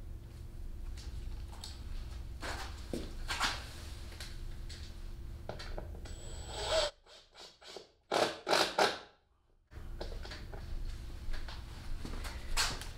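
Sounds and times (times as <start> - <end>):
low shop hum: 0.0 - 12.9
screws scraping into plywood: 6.4 - 6.9.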